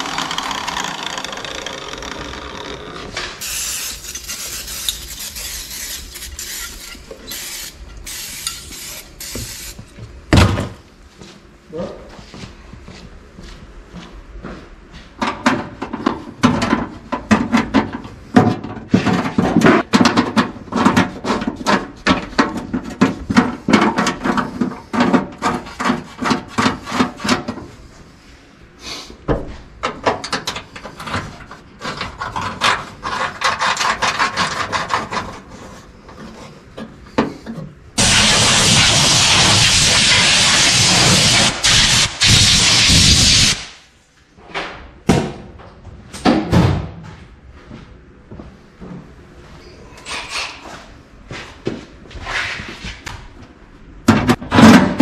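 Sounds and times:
compressed air blow gun hiss: 0:38.0 - 0:43.8.

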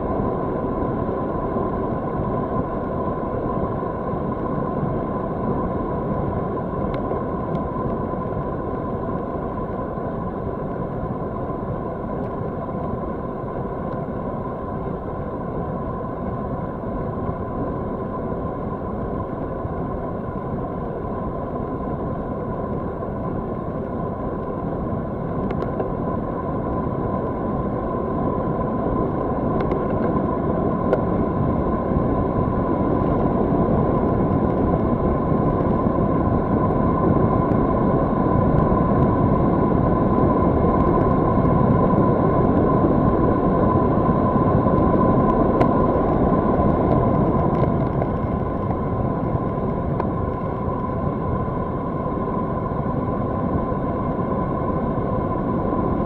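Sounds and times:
steady high hum: 0:00.0 - 0:56.0
wind rushing over microphone: 0:00.0 - 0:56.0
bicycle tyre rumble on asphalt: 0:18.7 - 0:56.0.

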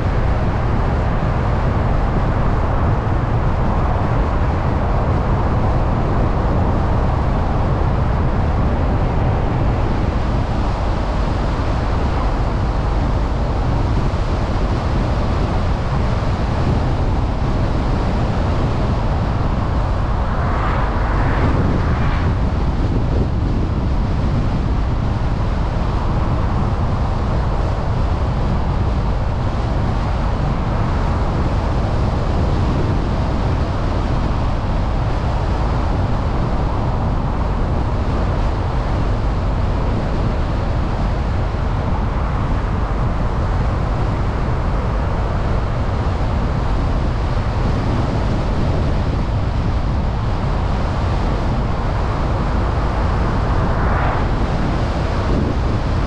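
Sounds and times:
wind: 0:00.0 - 0:56.0
tyre road noise: 0:05.0 - 0:27.5, 0:41.4 - 0:56.0.

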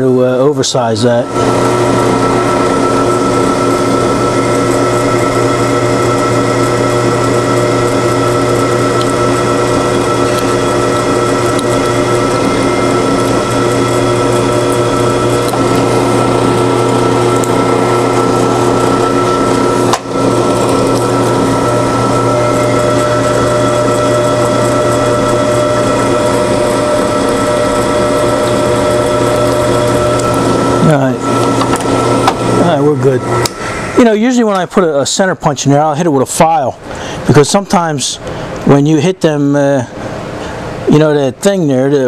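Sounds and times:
drill press drilling into metal: 0:01.3 - 0:34.8.

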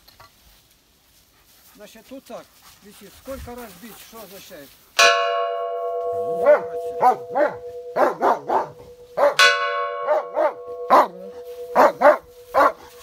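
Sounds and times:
gas cylinder bell ringing: 0:05.0 - 0:13.0
dog barking: 0:06.4 - 0:13.0.

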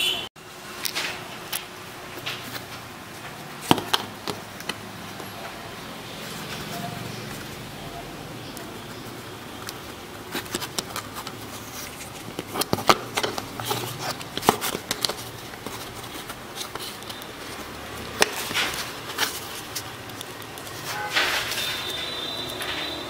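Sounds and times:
handling rustle: 0:08.5 - 0:22.9.

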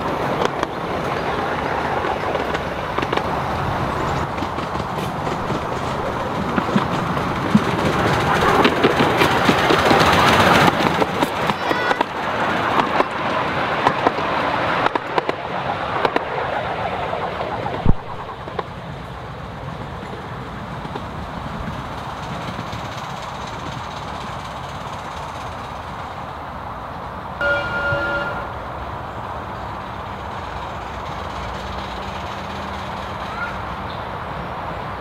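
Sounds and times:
train wheels clicking over rail joints: 0:00.0 - 0:16.3, 0:17.7 - 0:28.4, 0:29.0 - 0:34.4
distant locomotive whistle: 0:27.4 - 0:28.7.

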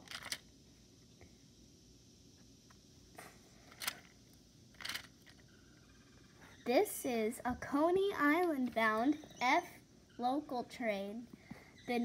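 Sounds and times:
toy train clicks and scrapes: 0:00.0 - 0:00.4, 0:04.8 - 0:05.4.

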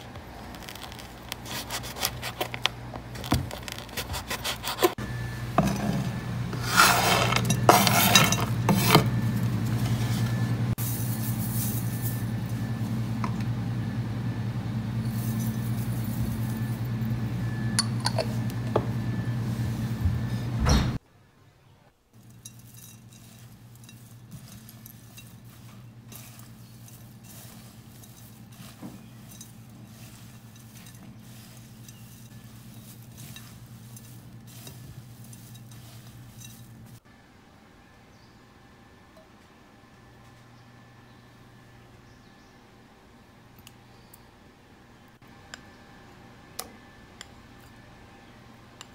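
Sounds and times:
spatula scraping and clicking: 0:00.0 - 0:05.0, 0:05.6 - 0:10.3, 0:22.2 - 0:37.0
steady low hum: 0:00.0 - 0:48.9.

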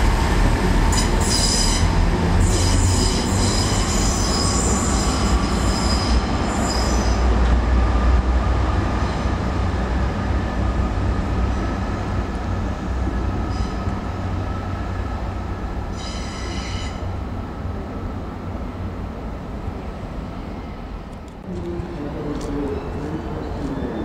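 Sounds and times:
diesel train engine and wheel rumble: 0:00.0 - 0:24.0
high wheel squeal: 0:00.9 - 0:07.2, 0:15.9 - 0:17.1.

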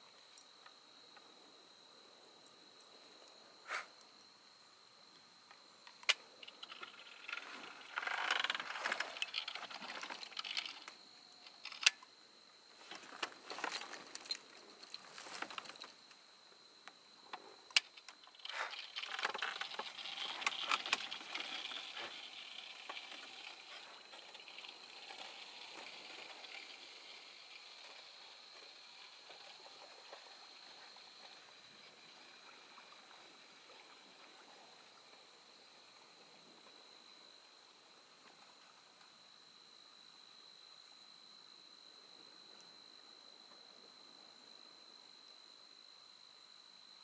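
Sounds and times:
insects trilling: 0:00.0 - 0:47.0
crackly rustling: 0:05.8 - 0:12.1, 0:12.7 - 0:16.2, 0:17.3 - 0:35.3.

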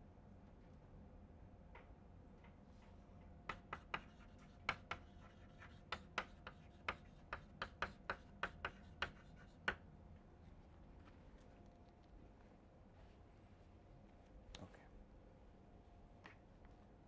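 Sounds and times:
chalk tapping on blackboard: 0:03.5 - 0:09.8.

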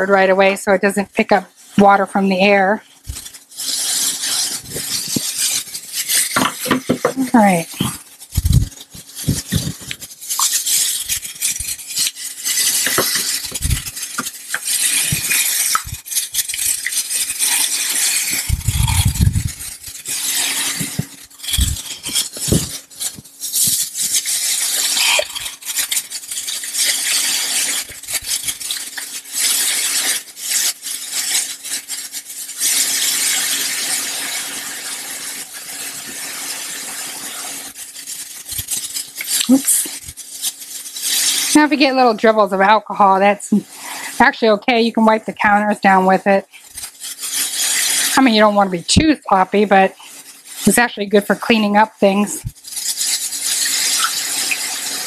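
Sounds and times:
plastic bottles being handled: 0:01.2 - 0:34.2, 0:37.0 - 0:44.6
liquid pouring through a funnel: 0:01.2 - 0:55.0.

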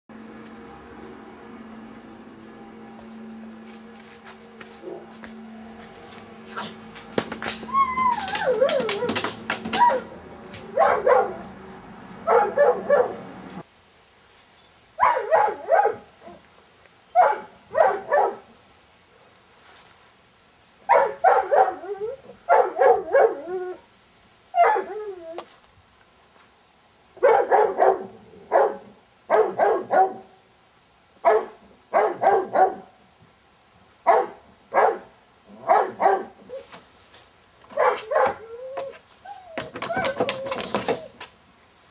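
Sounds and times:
large dog barking angrily: 0:10.8 - 0:11.5, 0:12.2 - 0:13.2, 0:15.0 - 0:16.0, 0:17.2 - 0:18.4, 0:20.9 - 0:21.8, 0:22.5 - 0:23.4, 0:27.2 - 0:30.3, 0:31.2 - 0:32.9, 0:34.1 - 0:36.4, 0:37.8 - 0:38.4.

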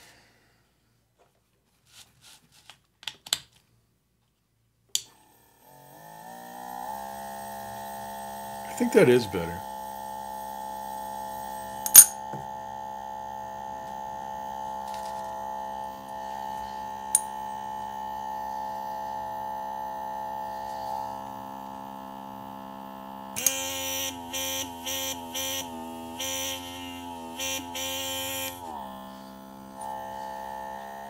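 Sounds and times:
air pump humming: 0:05.9 - 0:31.0
sharp clink: 0:11.8 - 0:12.2.

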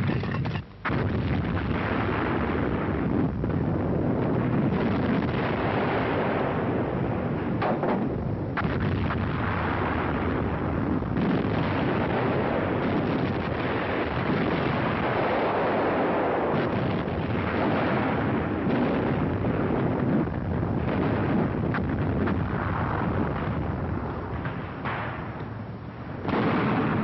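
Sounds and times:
rumble of gunfire: 0:00.0 - 0:27.0
shell explosions: 0:00.0 - 0:27.0.

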